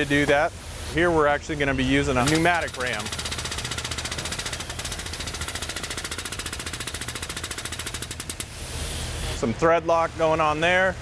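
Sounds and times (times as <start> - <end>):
pneumatic pump pulsing: 2.1 - 9.5.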